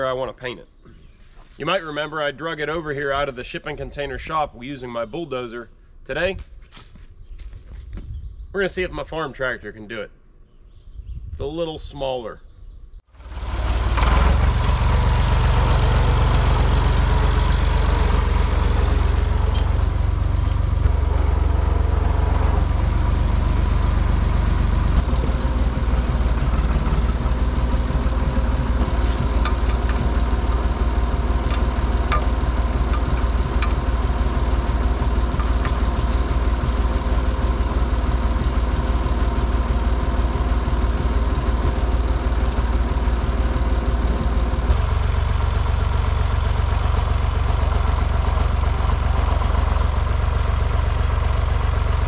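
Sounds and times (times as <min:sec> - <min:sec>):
tractor engine running: 0:13.1 - 0:52.0.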